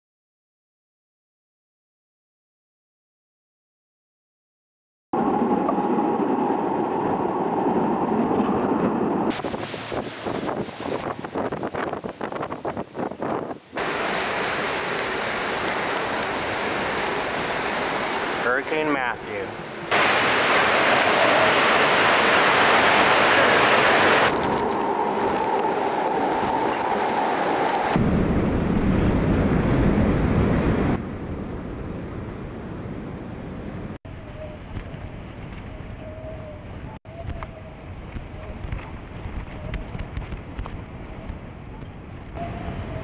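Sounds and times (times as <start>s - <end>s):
hurricane wind: 5.2s - 43.0s
wind gusts buffeting microphone: 5.2s - 43.0s
wind-blown rain hissing: 9.3s - 31.0s.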